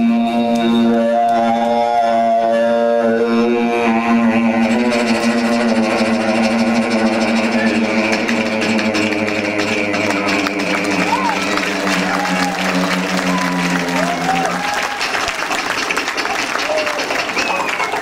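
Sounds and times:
person imitating an airplane: 0.9s - 14.7s.

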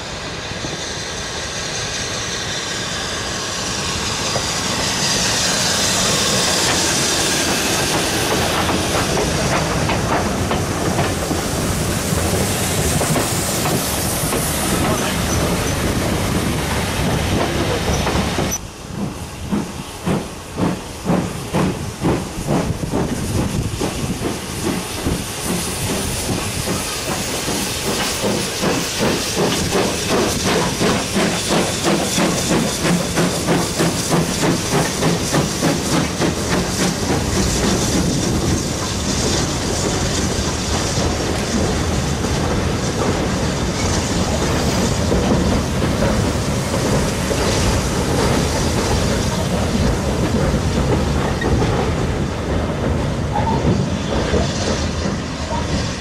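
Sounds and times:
steam hissing: 0.0s - 56.0s
steam locomotive exhaust beats: 0.0s - 56.0s
train wheels clicking over rail joints: 3.7s - 56.0s.

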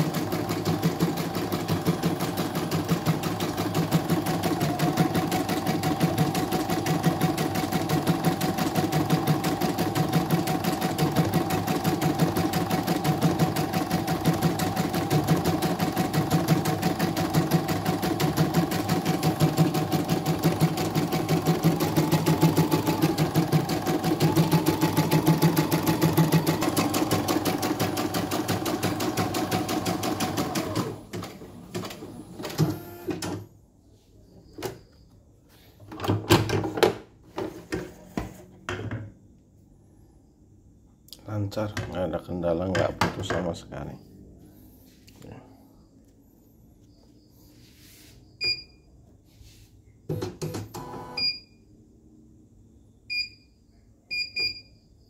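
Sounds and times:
sewing needle striking rapidly: 0.0s - 30.9s.

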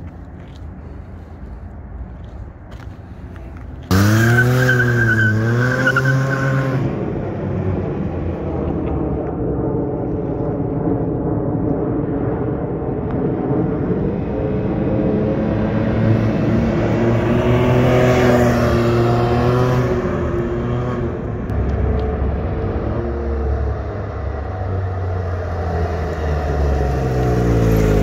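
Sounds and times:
motorcycle engine revving: 3.8s - 6.9s.

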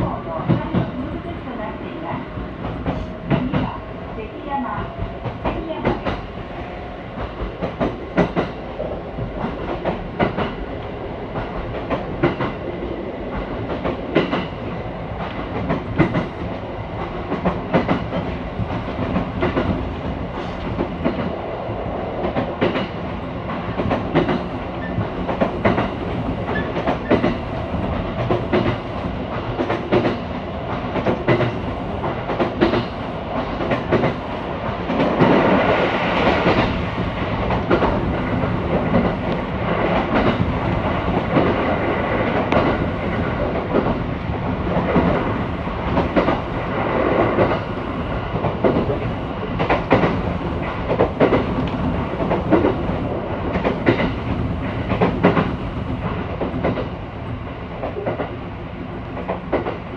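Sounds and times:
train wheels rumbling on rails: 0.0s - 59.9s
wheels clacking over rail joints: 48.4s - 56.9s.

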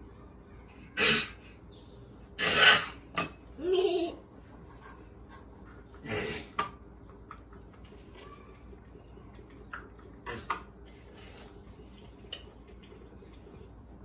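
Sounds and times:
children giggling: 3.6s - 4.4s.

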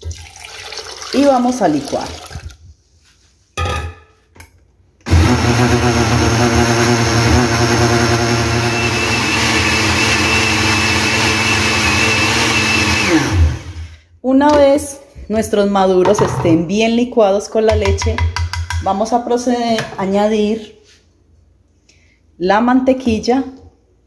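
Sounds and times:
blender running: 5.1s - 13.9s.

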